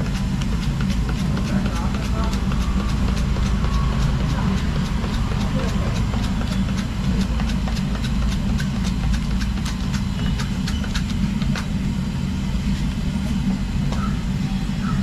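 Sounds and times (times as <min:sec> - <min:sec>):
low engine-like hum: 0:00.0 - 0:15.0.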